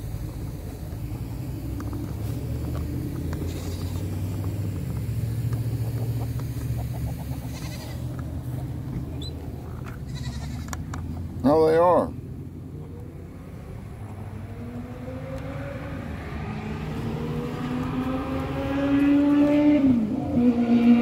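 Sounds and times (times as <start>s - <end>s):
faint farm animal calls: 6.7s - 8.2s, 10.0s - 10.8s.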